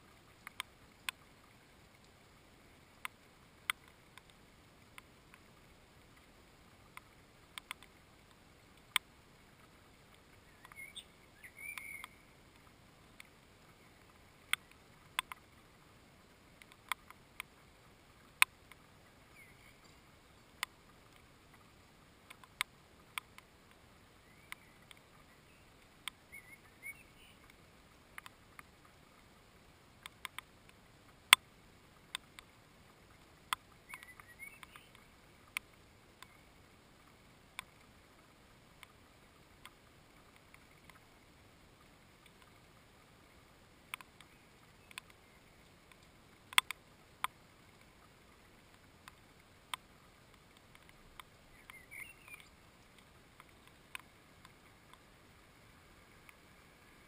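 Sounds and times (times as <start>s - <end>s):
short bird chirps: 10.4s - 12.3s, 26.3s - 27.4s, 33.9s - 35.0s, 51.5s - 52.5s.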